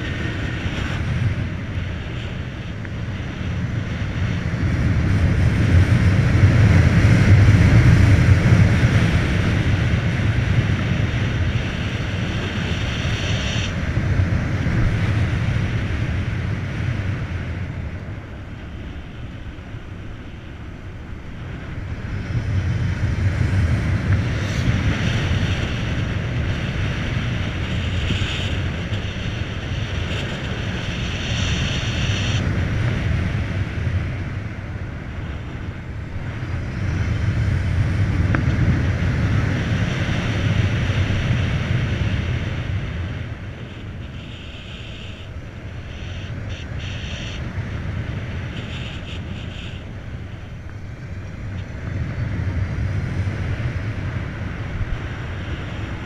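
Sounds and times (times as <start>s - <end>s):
motorcycle tyre roar: 0.0s - 56.0s
wind buffeting microphone: 0.0s - 56.0s
faint high whine: 33.8s - 56.0s.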